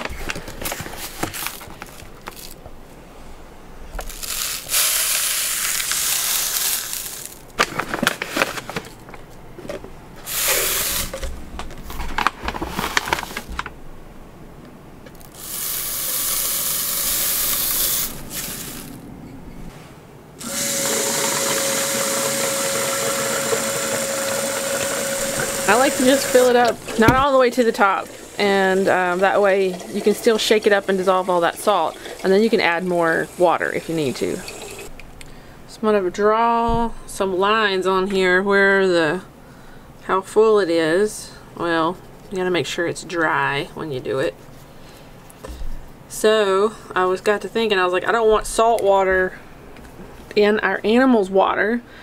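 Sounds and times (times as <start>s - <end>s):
salt pouring into bottles: 4.1s - 7.5s, 10.3s - 11.1s, 15.3s - 19.0s, 20.7s - 26.7s
tap water filling bottle: 20.6s - 32.6s, 33.8s - 34.9s.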